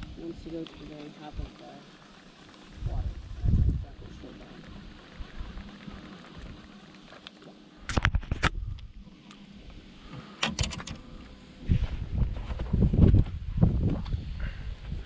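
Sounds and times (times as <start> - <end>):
low rumbling wind buffeting microphone: 2.6 - 6.8, 8.0 - 10.0, 11.0 - 15.0.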